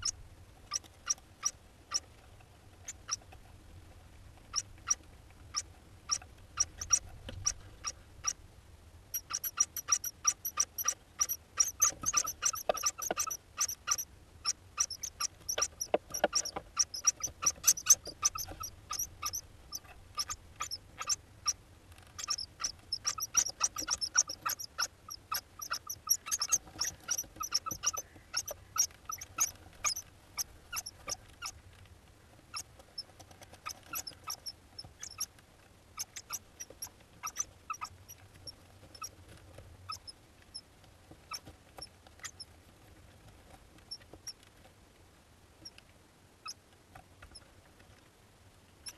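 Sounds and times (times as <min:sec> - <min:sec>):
bird chicks squeaky calls: 0:04.5 - 0:08.4, 0:09.1 - 0:21.6, 0:22.2 - 0:31.6, 0:32.5 - 0:35.3, 0:36.0 - 0:38.2.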